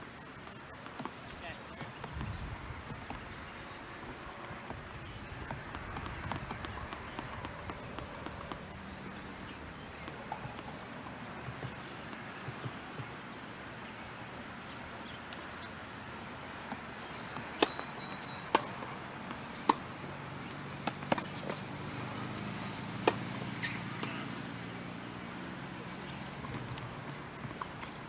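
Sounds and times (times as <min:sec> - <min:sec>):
steady background hiss: 0:00.0 - 0:28.0
tennis ball pops: 0:16.7 - 0:18.8, 0:19.6 - 0:19.9, 0:23.0 - 0:24.2.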